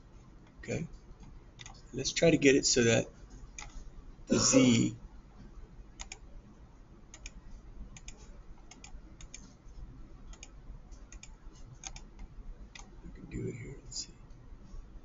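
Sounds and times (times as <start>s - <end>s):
computer mouse clicking: 1.6s - 1.8s, 3.6s - 3.8s, 6.0s - 6.2s, 7.1s - 7.4s, 8.0s - 9.6s, 10.3s - 12.9s.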